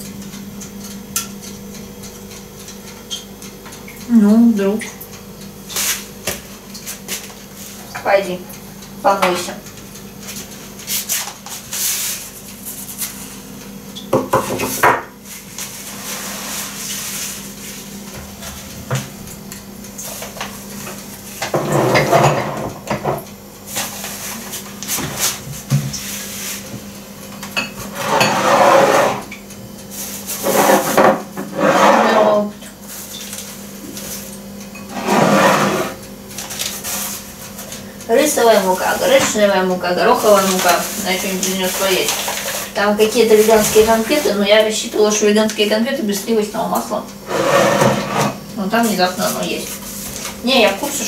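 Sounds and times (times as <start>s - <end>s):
dishes clattering and knocking: 14.1s - 15.2s, 21.4s - 23.3s, 27.4s - 29.3s, 30.5s - 32.4s.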